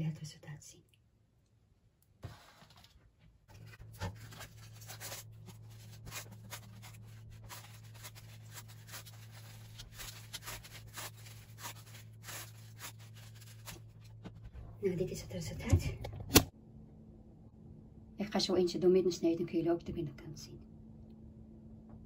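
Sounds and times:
steady low hum: 3.4 - 22.0
paper cupcake cases crinkling: 3.5 - 14.5.

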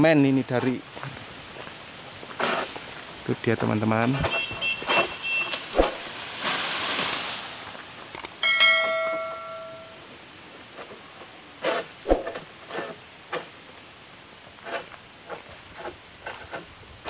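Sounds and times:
rustling rush: 4.2 - 8.1
metal pole clanging: 8.4 - 10.0.

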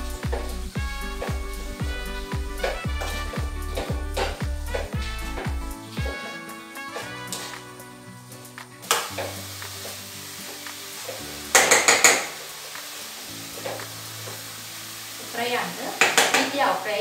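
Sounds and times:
carrots sizzling in a pan: 0.0 - 17.0
spoon scraping a pan: 1.0 - 7.8.

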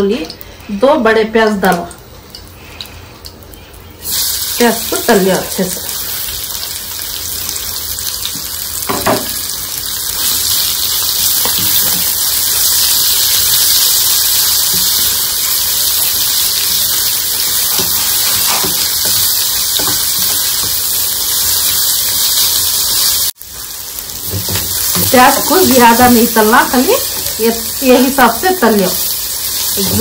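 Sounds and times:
onions sizzling in hot oil: 0.0 - 30.0
wooden spoon knocking on pan: 8.9 - 9.4.

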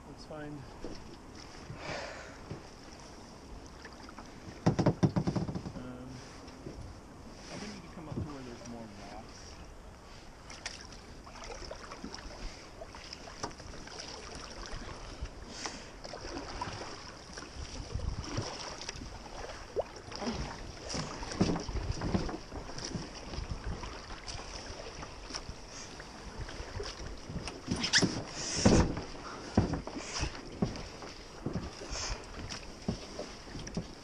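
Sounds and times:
paddle splashing in water: 0.7 - 34.0
wind buffeting microphone: 17.5 - 19.3, 20.3 - 24.3.

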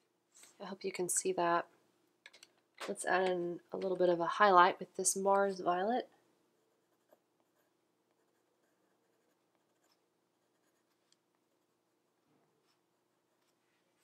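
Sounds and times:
pencil scratching on paper: 6.5 - 14.0.

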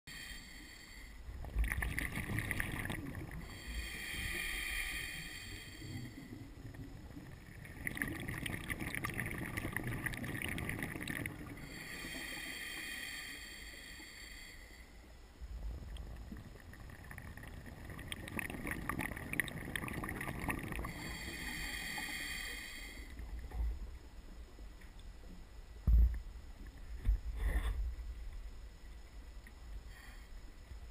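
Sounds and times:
hissing regulator inhalations: 0.1 - 1.3, 3.3 - 6.6, 11.4 - 15.1, 20.8 - 23.2
bubbling exhalations: 1.5 - 3.5, 7.6 - 11.7, 16.7 - 21.1.

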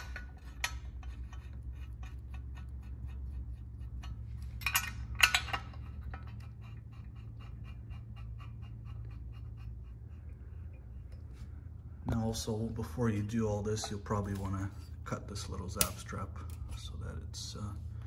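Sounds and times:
low steady hum: 0.0 - 18.0
metal bolt clinking: 4.0 - 6.3.

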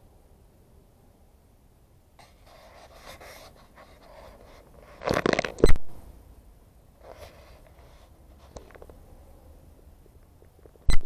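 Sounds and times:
crackling rustle: 2.2 - 6.1, 7.0 - 9.0.

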